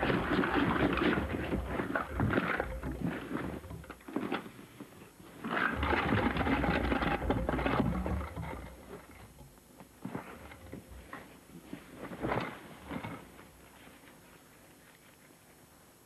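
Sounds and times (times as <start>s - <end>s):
cloth sack rustling and flapping: 5.4s - 9.1s.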